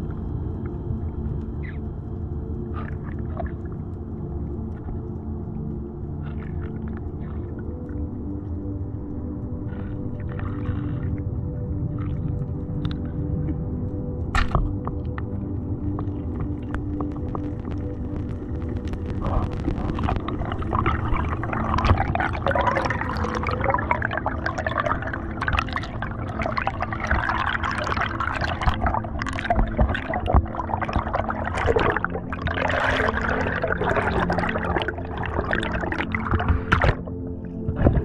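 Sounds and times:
bubbles gurgling: 14.4 - 38.0
underwater water rushing: 14.4 - 38.0.

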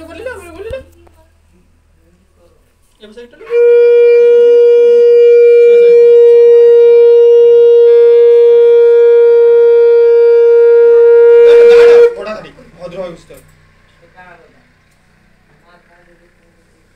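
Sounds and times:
conch shell blown: 3.4 - 12.4.

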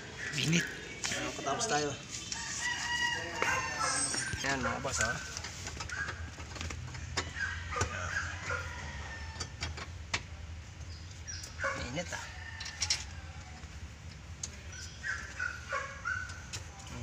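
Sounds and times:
dog yipping: 3.4 - 6.3, 7.2 - 8.8, 11.6 - 12.0, 14.9 - 16.5.

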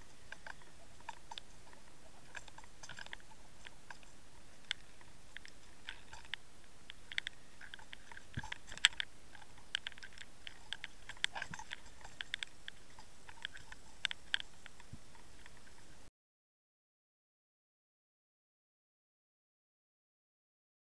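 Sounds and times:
sharp clicks and ticks: 0.3 - 15.7.

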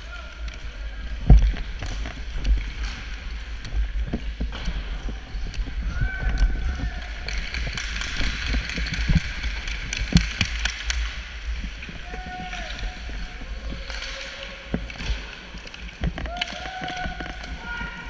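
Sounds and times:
sled picks clicking on ice: 0.0 - 18.0.

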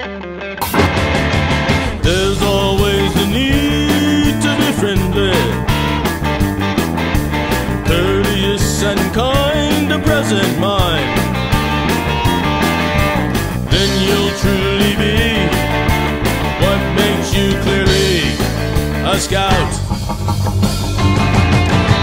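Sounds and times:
rock band music: 0.0 - 22.0.

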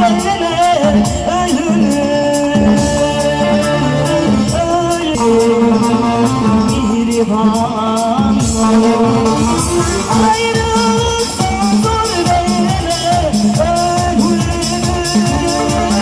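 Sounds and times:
keyboard: 0.0 - 16.0
percussion beat: 0.0 - 16.0
woman singing: 0.0 - 16.0
plucked string instrument: 2.7 - 14.4.

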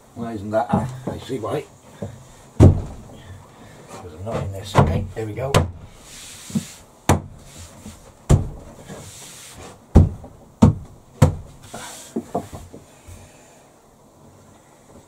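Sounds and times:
worktop knocking on timber frame: 2.0 - 3.0, 4.7 - 5.8, 8.3 - 8.6, 10.0 - 11.5
worktop scraping: 6.0 - 6.8.

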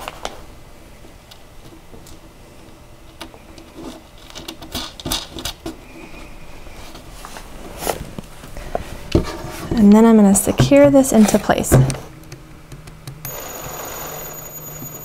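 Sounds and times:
plastic pad rustling: 7.2 - 12.4.

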